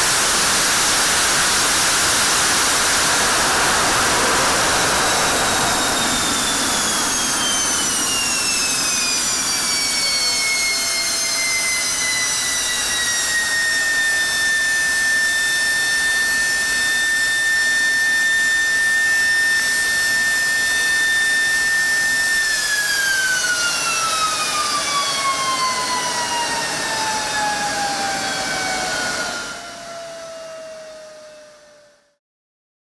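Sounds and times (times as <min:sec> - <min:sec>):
high turbine whine: 0:00.0 - 0:32.2
jet engine spooling down: 0:00.0 - 0:32.2.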